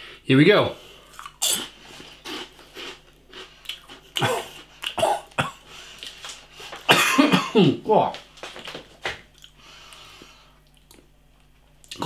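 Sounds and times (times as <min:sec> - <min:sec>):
man coughing: 0:04.1 - 0:05.7, 0:06.8 - 0:07.8.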